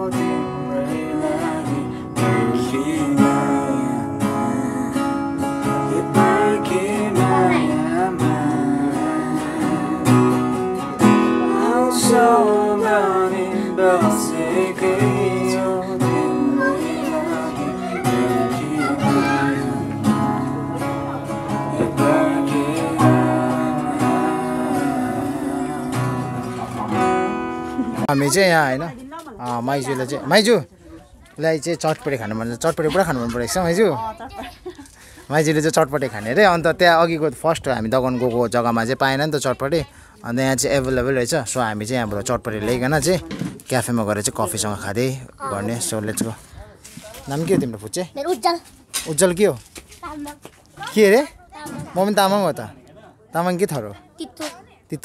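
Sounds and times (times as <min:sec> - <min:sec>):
strummed acoustic guitar: 0:00.0 - 0:30.4, 0:42.4 - 0:51.0.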